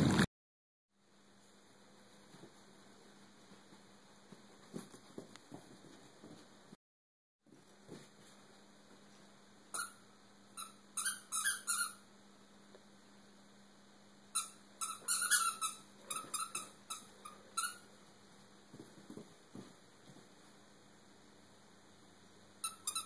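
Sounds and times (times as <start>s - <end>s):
squeaky dog toy squeaking: 9.7s - 10.0s, 10.6s - 12.0s, 14.4s - 17.9s, 22.6s - 23.0s.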